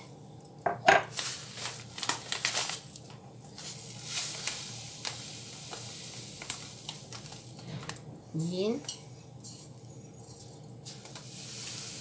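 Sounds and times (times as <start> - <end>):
plastic bag crinkling: 1.1 - 5.2
sugar granules hissing against glass: 3.6 - 7.6, 10.3 - 12.0.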